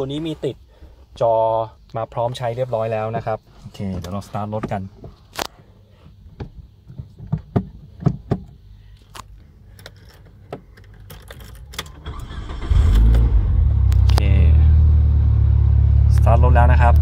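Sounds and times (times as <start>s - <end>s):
car keys jangling: 9.7s - 12.6s
car engine cranking and starting: 10.8s - 17.0s.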